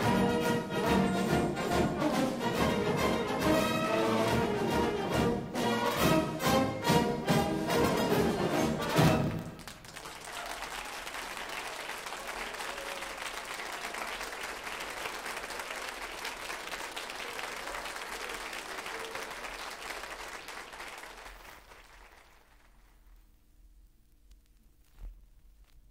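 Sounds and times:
band music: 0.0 - 9.6
audience applauding: 8.7 - 23.2.

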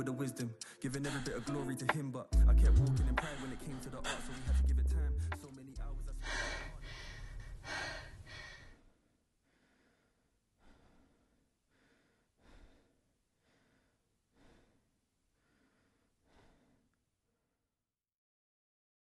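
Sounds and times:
song playing: 0.0 - 6.3
woman breathing heavily and sighing: 6.2 - 16.9.

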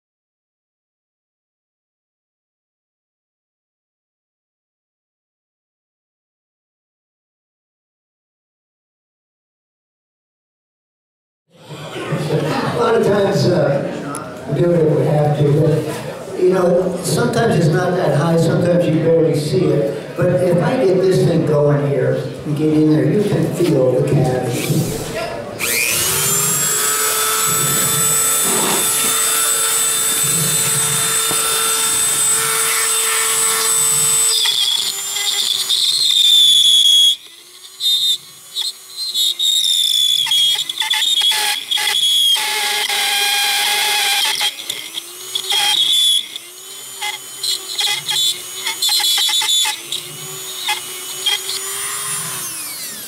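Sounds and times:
rotary tool grinding whine: 24.2 - 53.0.

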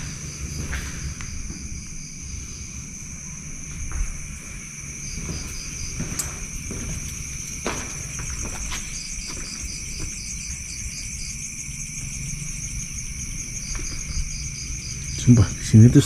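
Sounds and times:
soft footstep scuffs: 0.0 - 10.8
crickets trilling: 0.0 - 16.0.

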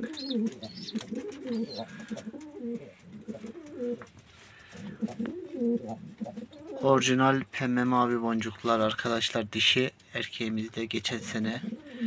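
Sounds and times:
pigeons cooing: 0.0 - 7.0, 11.1 - 12.0.

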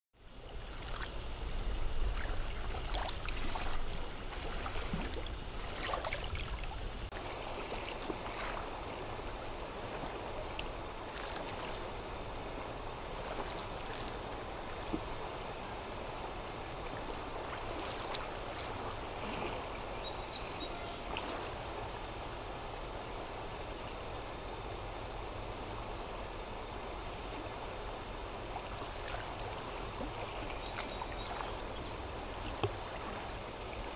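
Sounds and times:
high whine: 0.2 - 7.1.

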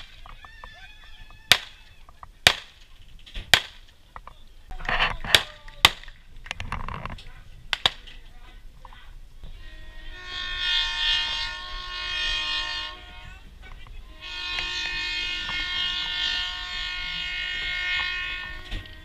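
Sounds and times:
low rumble of moving train: 9.3 - 19.0
train horn blasts: 9.4 - 19.0.

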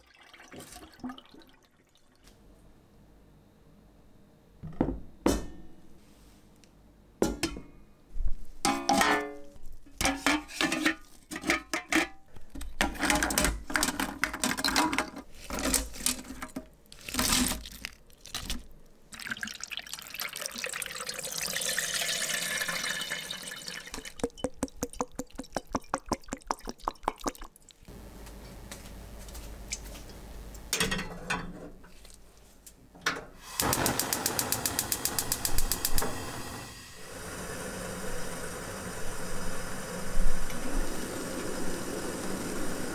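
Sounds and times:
water pouring: 0.0 - 2.2, 17.0 - 27.9
steady hiss: 33.4 - 42.9.

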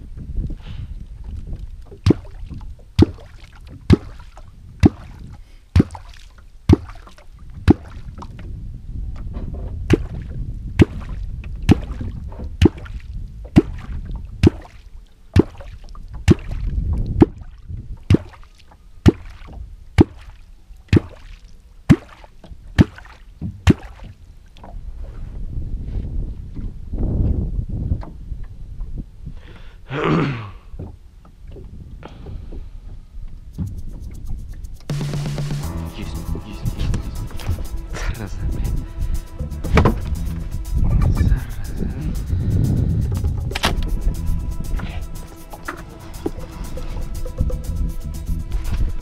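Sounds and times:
wind: 0.0 - 49.0
hollow gulp of call slapping water: 1.3 - 8.4, 9.8 - 24.8
water wash: 43.1 - 49.0.

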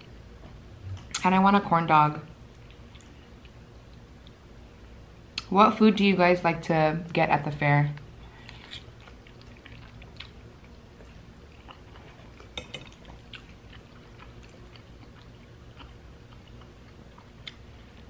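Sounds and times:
chewing with wet mouth sounds: 2.5 - 4.4, 8.3 - 18.0.

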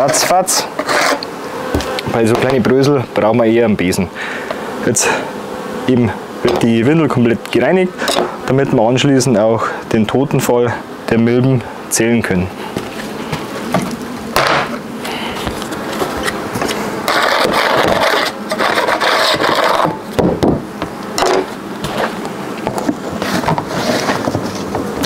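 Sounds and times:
brush sweeping board: 0.0 - 2.9, 12.5 - 14.0, 14.6 - 20.2, 21.2 - 25.0.

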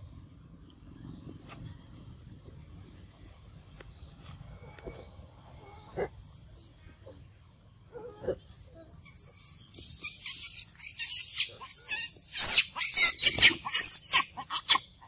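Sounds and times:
monkey squealing and screaming: 8.5 - 15.0.

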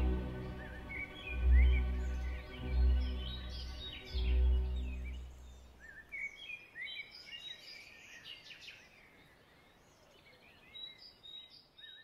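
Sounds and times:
orchestral music: 0.0 - 5.8
birds chirping and singing: 0.0 - 12.0.

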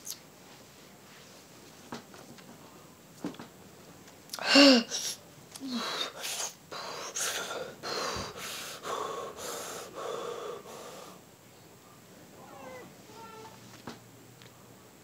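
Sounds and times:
boy huffing sharp breaths: 4.4 - 11.2.

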